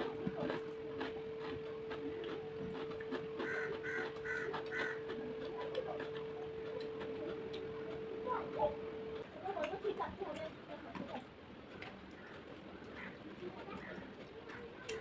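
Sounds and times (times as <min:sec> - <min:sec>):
fingers mixing rice on a plate: 0:00.0 - 0:08.2
chewing: 0:00.0 - 0:15.0
steady hum: 0:00.0 - 0:15.0
bird calling: 0:02.1 - 0:07.7.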